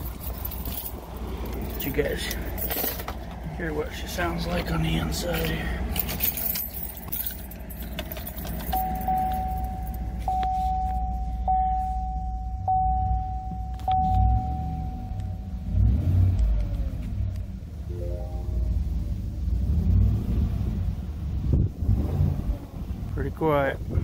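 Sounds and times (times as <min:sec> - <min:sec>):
engine rumble inside cab: 0:00.0 - 0:24.0
dashboard warning chime: 0:08.7 - 0:15.9, 0:17.9 - 0:19.2.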